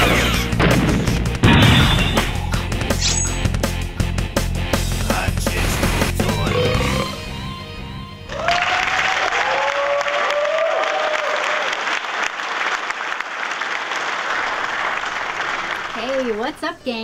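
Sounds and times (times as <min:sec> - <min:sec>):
music: 0:00.0 - 0:09.7
whoops: 0:08.3 - 0:11.8
crowd applause and cheering: 0:08.3 - 0:16.4.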